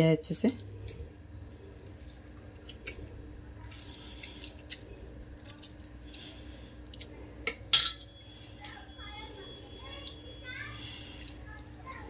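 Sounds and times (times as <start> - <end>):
juice dripping into water: 1.8 - 7.2.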